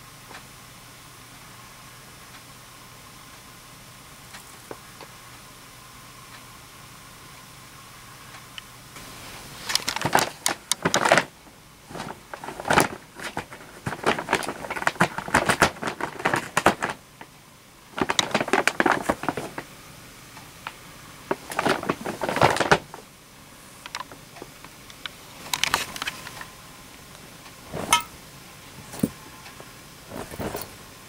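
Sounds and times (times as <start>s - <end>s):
paper bags crinkling and rustling: 9.2s - 17.3s, 17.9s - 19.7s, 21.2s - 23.1s, 30.1s - 30.8s.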